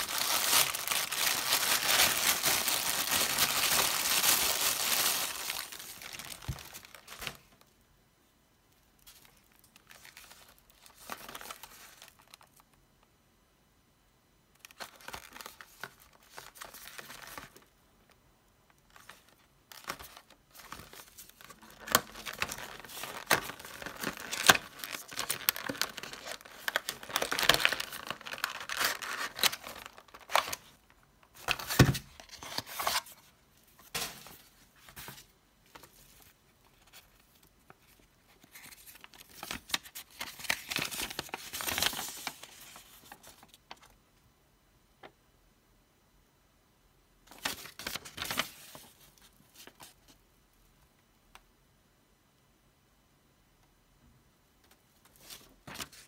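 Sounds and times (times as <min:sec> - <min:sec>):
plastic tray crinkling: 0:00.0 - 0:07.6, 0:18.9 - 0:33.2.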